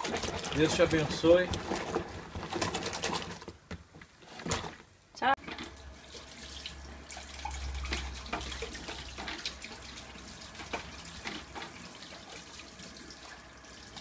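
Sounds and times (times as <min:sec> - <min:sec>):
water dripping in a metal sink: 0:06.2 - 0:14.0.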